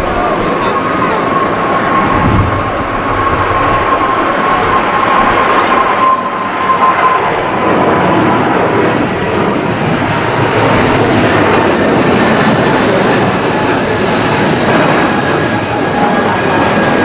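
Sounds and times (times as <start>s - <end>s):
thin engine whine: 0.0s - 11.6s
jet engines roaring: 0.0s - 17.0s.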